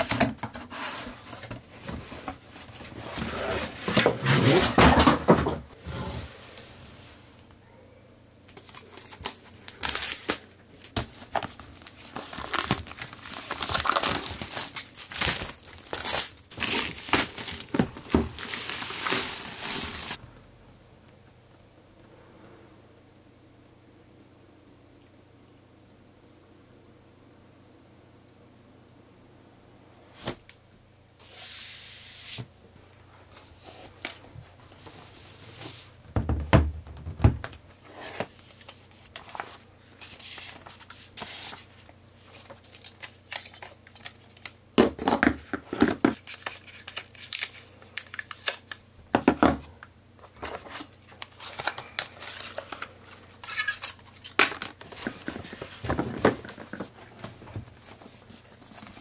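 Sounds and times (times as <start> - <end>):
paper rustling and crinkling: 8.5 - 20.2, 37.9 - 44.6, 50.2 - 59.0.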